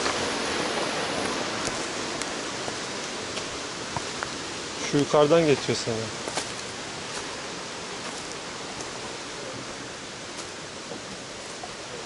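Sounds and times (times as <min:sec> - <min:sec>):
waterfall rushing: 0:00.0 - 0:12.0
footsteps on leaf litter: 0:05.4 - 0:07.4.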